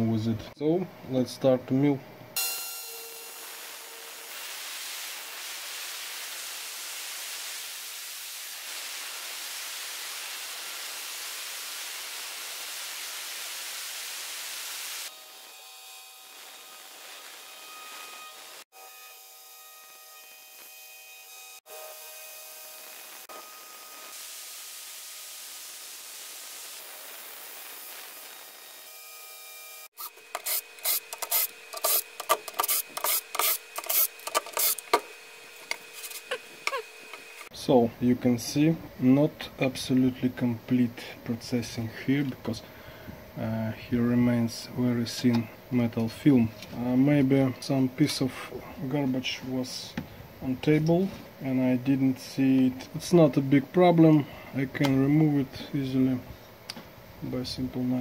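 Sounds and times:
drill whirring bursts: 29.7 - 37.5
router milling metal hiss: 29.9 - 37.5.

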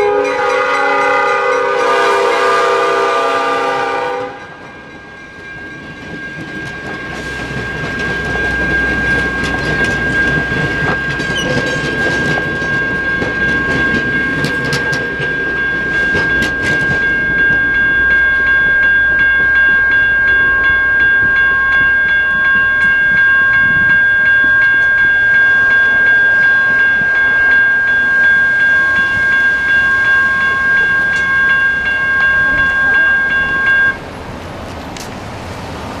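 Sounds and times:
electronic crossing bells ringing: 0.0 - 34.0
train rumbling over rails: 0.0 - 36.0
sharp rail clicks: 6.1 - 19.9, 34.6 - 35.6.

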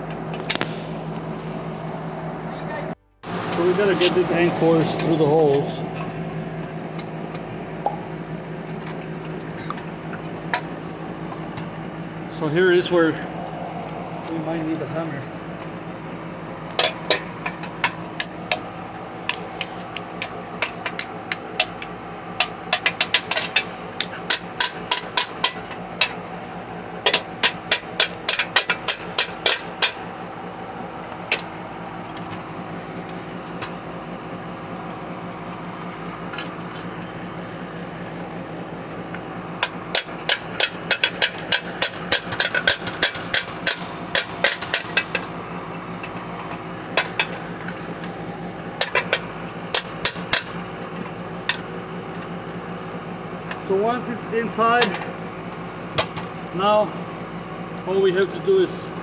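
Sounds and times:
hammer tapping metal: 7.9 - 8.4.

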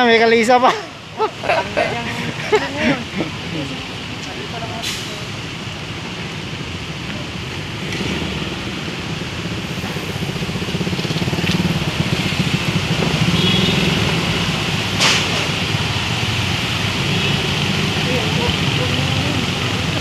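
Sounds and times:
car engines running: 0.0 - 20.0
motorcycle passing: 7.7 - 20.0.

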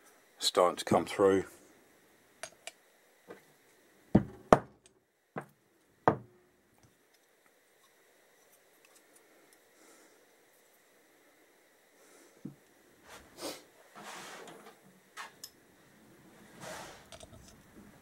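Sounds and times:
parts and tools knocking on workbench: 4.2 - 4.8, 6.1 - 6.3.

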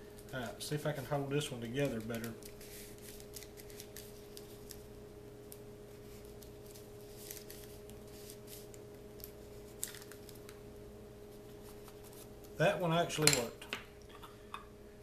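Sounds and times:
faint hum: 0.0 - 15.0
thin paper rustling and crinkling: 0.1 - 4.9, 5.5 - 10.6.

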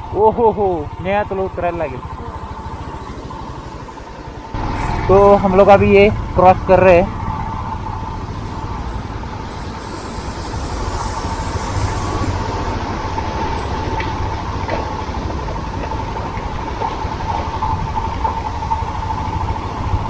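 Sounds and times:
motorcycle engine running: 0.0 - 20.0
tyres on gravel: 4.6 - 19.5.

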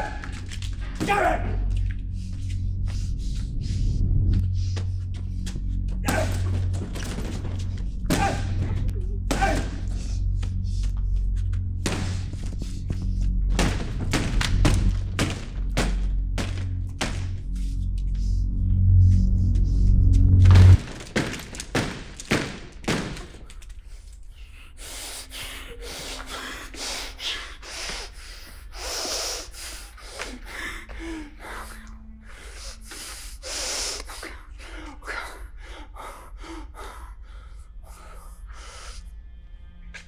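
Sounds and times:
loud low drone: 0.0 - 20.9
person breathing heavily and gasping: 1.6 - 6.6, 23.5 - 39.2.

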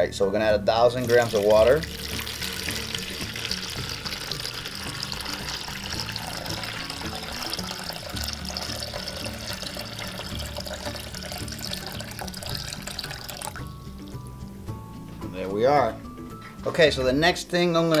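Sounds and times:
background music: 0.0 - 18.0
water pouring into plastic tub: 1.0 - 14.2.

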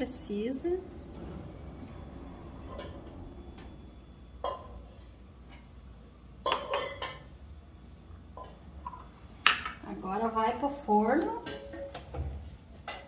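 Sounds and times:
kitchenware clinking: 2.6 - 7.4, 8.3 - 9.9, 11.2 - 13.0.

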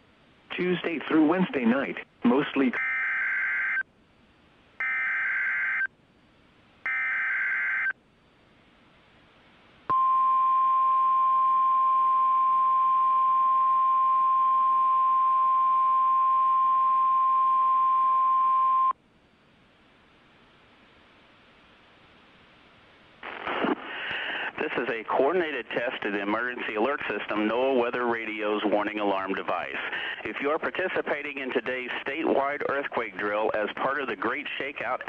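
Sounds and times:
steady warning alarm tone: 2.8 - 3.8, 4.8 - 5.9, 6.8 - 8.0.

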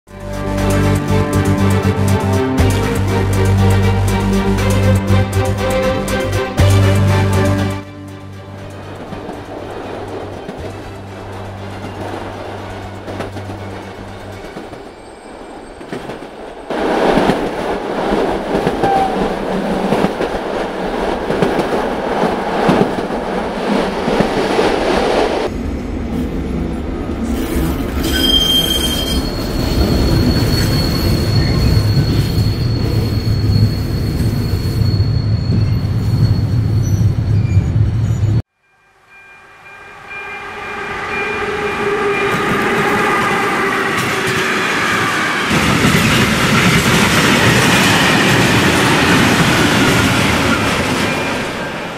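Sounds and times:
train wheels rumbling on track: 0.6 - 38.4, 40.0 - 51.9
train horn: 18.8 - 19.3, 38.6 - 47.6
high squeal: 27.4 - 51.8.

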